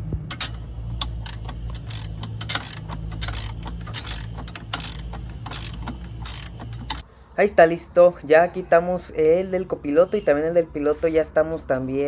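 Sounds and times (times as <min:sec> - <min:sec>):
ratcheting wrench clicking: 0:00.3 - 0:07.0.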